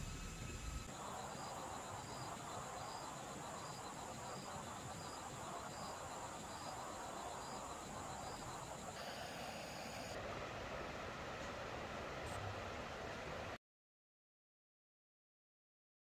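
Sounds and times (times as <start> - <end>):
insect chirps: 0.0 - 10.2
steady hiss: 0.0 - 13.6
insects trilling: 0.1 - 10.2.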